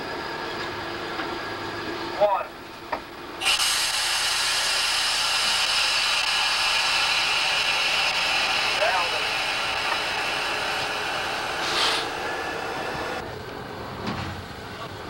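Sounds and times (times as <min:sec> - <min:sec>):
steady loud hiss: 0:03.4 - 0:13.2.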